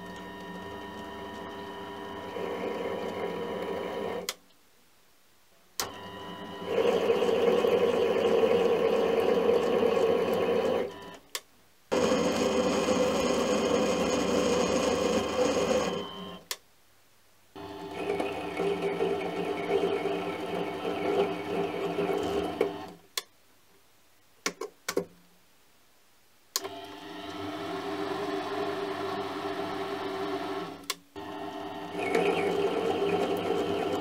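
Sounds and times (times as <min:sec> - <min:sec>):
lathe running: 0:06.6 - 0:10.9, 0:11.9 - 0:16.0, 0:17.6 - 0:22.9, 0:26.9 - 0:34.0
gear and motor whine: 0:11.9 - 0:16.3, 0:31.2 - 0:34.0.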